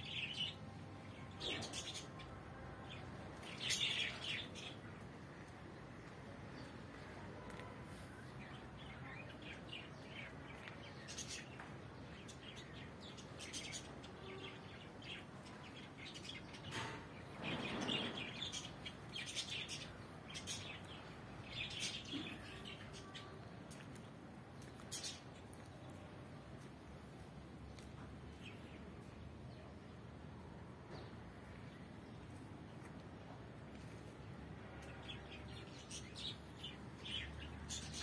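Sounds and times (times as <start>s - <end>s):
small birds chirping: 0.0s - 26.2s, 34.8s - 38.0s
faint steady background noise: 0.0s - 38.0s.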